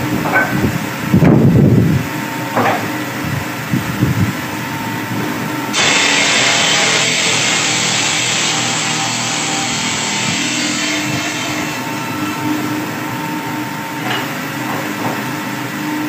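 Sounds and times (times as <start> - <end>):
loud machine hiss: 5.7 - 12.8
tile saw grinding: 5.8 - 11.9.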